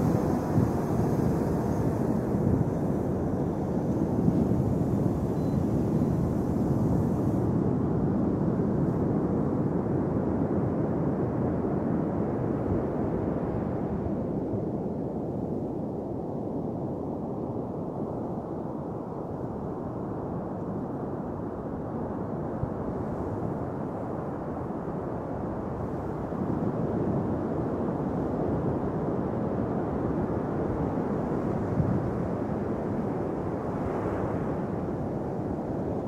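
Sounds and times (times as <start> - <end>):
ocean surf on a beach: 0.0 - 9.2, 22.5 - 36.0
wind noise on microphone: 0.0 - 36.0.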